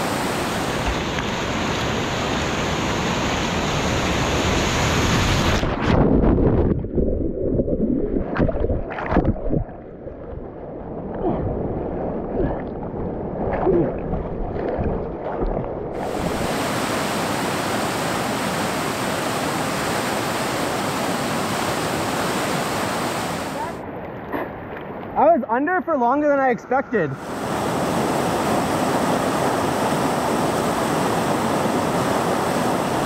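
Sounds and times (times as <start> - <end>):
whitewater rapids rushing: 0.0 - 5.6, 16.0 - 23.8, 27.2 - 33.0
muffled churning water: 0.0 - 25.6, 26.7 - 33.0.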